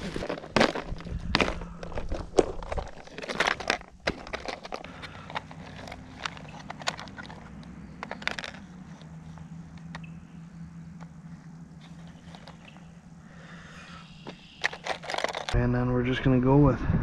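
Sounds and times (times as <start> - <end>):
rustling: 0.0 - 15.6
plastic lures clicking and rattling: 0.1 - 10.1, 11.8 - 12.8, 14.6 - 15.6.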